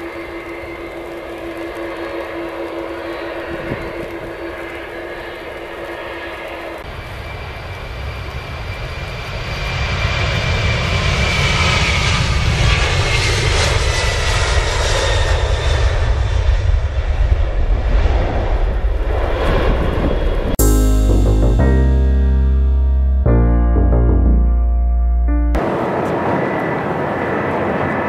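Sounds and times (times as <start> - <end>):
jet engines at takeoff: 0.0 - 20.6, 25.6 - 28.0
faint high whine falling in pitch: 20.6 - 26.5.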